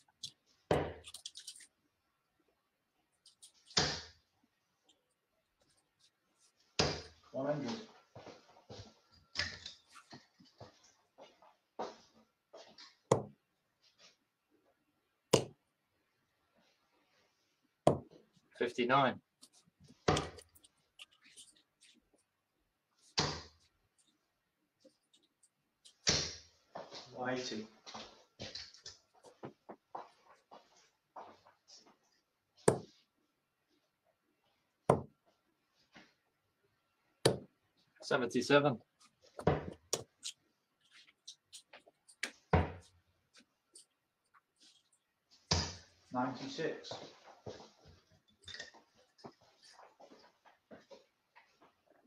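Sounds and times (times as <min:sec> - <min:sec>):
darts thudding into dartboard: 0:13.1 - 0:13.4, 0:32.7 - 0:32.9, 0:34.9 - 0:35.1.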